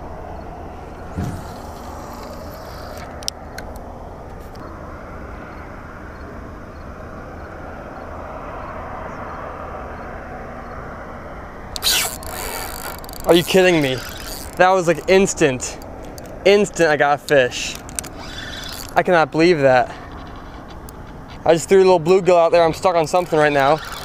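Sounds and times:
distant rumble: 0.0 - 4.9, 11.6 - 24.0
loud scraping burst: 1.0 - 3.2, 11.8 - 16.8, 22.6 - 24.0
sharp clicks: 11.8 - 19.0, 23.1 - 24.0.

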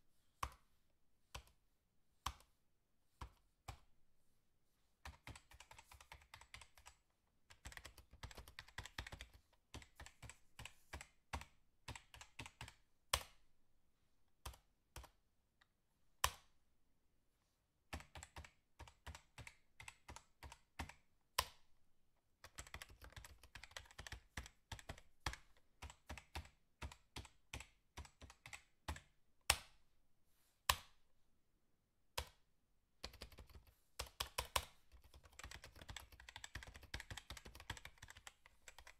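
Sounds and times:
typing on computer keyboard: 5.0 - 13.4, 17.9 - 21.6, 22.4 - 29.2, 33.0 - 38.9.

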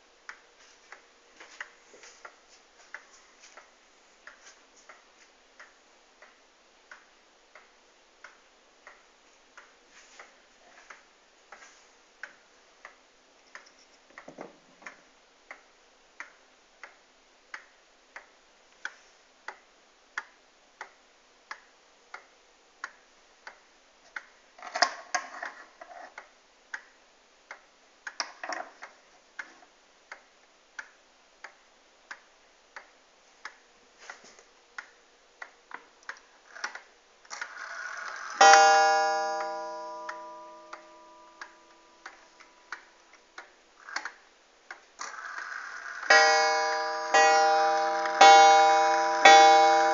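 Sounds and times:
pendulum clock ticking: 36.4 - 49.9.

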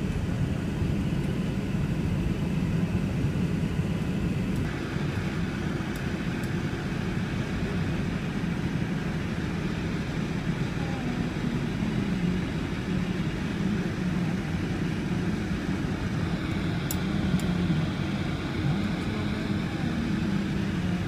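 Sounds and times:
car engine and tyres rumbling: 4.3 - 21.0.

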